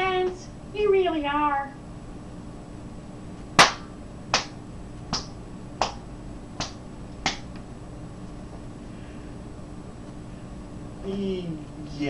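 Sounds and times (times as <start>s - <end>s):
faint steady hum: 0.0s - 12.0s
finger snaps: 3.6s - 6.0s, 6.6s - 7.6s.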